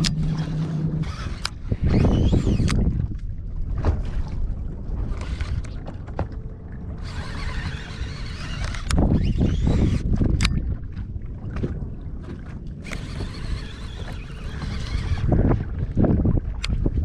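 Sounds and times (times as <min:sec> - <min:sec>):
fishing reel clicks: 0:00.0 - 0:02.8, 0:07.0 - 0:10.6
water slapping against boat hull: 0:00.0 - 0:17.0
wind on microphone: 0:00.0 - 0:17.0.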